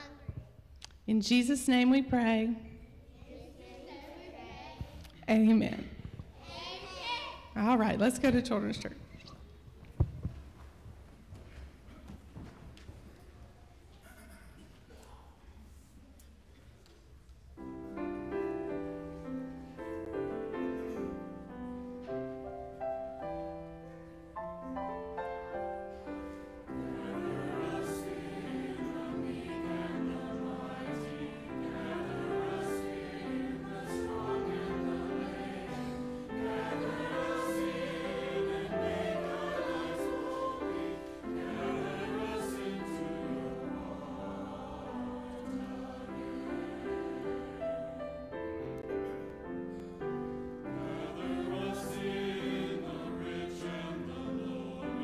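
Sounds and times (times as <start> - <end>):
choir singing: 17.6 - 55.0
piano accompaniment: 17.6 - 55.0.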